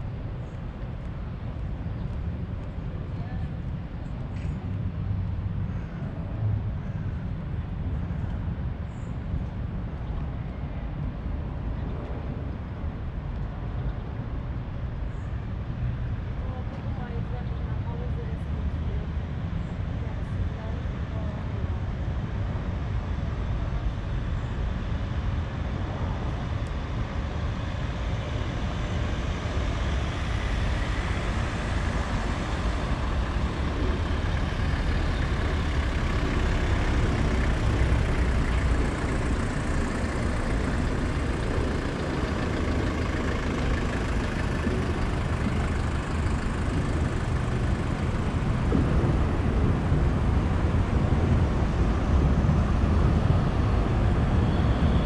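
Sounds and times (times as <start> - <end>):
cars driving past slowly: 0.0 - 55.0.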